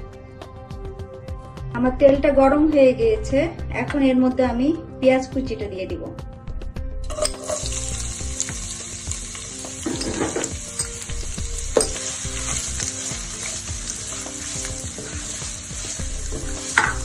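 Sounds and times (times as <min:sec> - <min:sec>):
onions sizzling in oil: 0:07.1 - 0:17.0
utensil scraping pan: 0:11.7 - 0:17.0.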